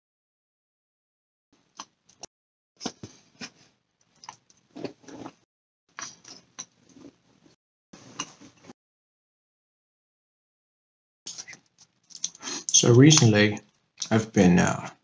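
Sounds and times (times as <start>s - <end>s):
chewing and lip-smacking: 4.0s - 7.1s, 11.3s - 12.4s.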